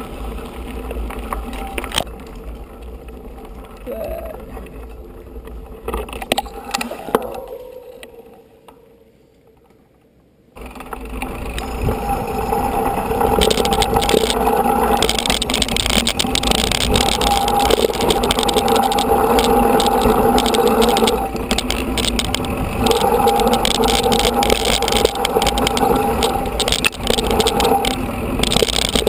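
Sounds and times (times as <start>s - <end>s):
bike rolling over dirt track: 0.0s - 29.0s
wind on microphone: 11.2s - 29.0s.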